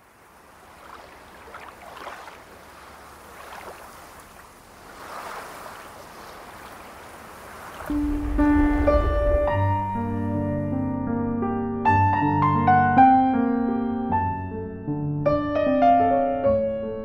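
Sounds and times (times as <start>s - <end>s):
soft rushing noise: 4.2s - 10.6s.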